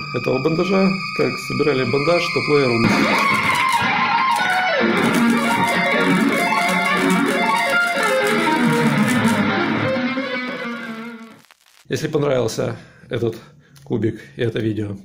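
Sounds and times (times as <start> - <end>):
guitar background music: 2.7 - 11.4.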